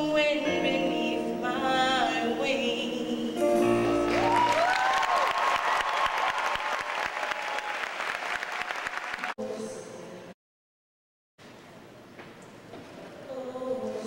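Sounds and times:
musical accompaniment: 0.4s - 4.7s
whoops from audience: 4.0s - 8.1s
audience applause: 4.0s - 9.4s.

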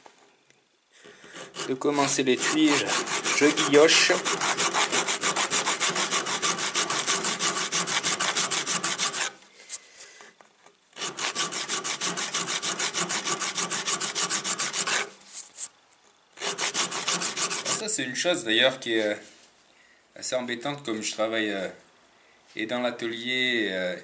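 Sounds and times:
hand file rasping on metal: 1.2s - 9.4s, 11.0s - 15.1s, 16.4s - 17.8s.

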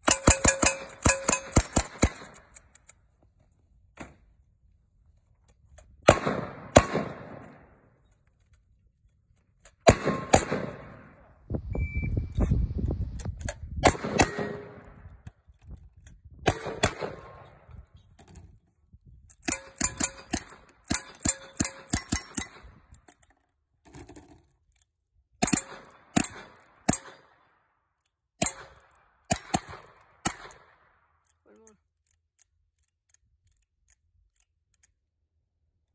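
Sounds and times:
gunshots: 0.0s - 2.4s, 6.1s - 7.8s, 9.8s - 11.3s, 13.8s - 15.0s, 16.5s - 17.6s, 28.4s - 30.9s.

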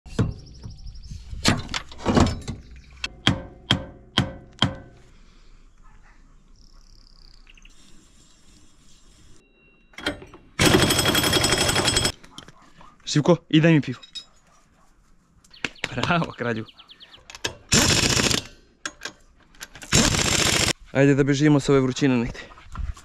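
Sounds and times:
sharp metallic knocks: 1.5s - 5.0s
impact wrench rattling: 10.0s - 12.2s, 17.3s - 20.7s.

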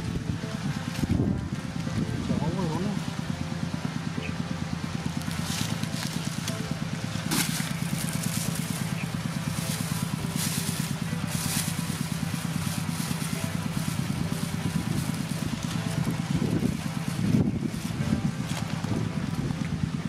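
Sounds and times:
small engine idling: 0.0s - 20.0s
plastic bag rustling: 7.2s - 17.9s.

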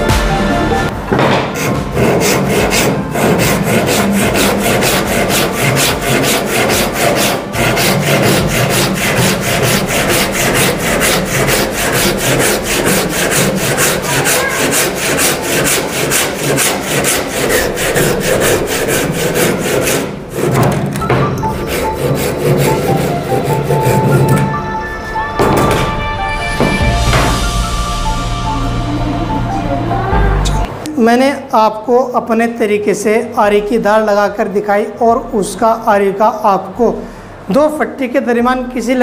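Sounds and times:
hand saw cutting wood: 1.4s - 20.8s, 21.6s - 24.5s.

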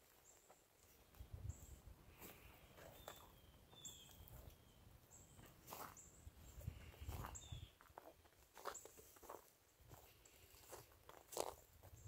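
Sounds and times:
faint high bird calls: 1.5s - 7.8s.

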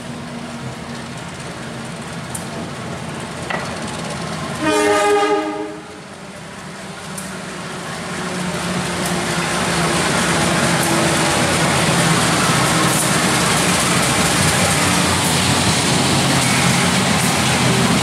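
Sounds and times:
locomotive horn: 4.6s - 6.0s.

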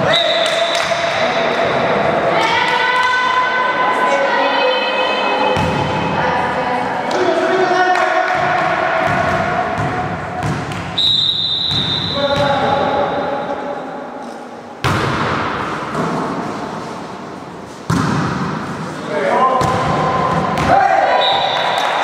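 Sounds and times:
referee's whistle: 11.0s - 12.3s, 21.1s - 22.0s
volleyball struck hard: 17.9s - 18.6s.

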